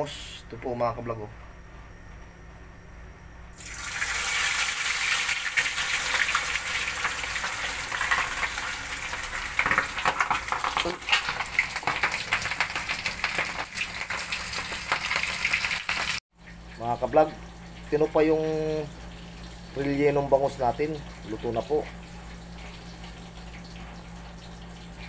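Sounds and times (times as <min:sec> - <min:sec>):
fish sizzling in hot oil: 0:03.6 - 0:16.2.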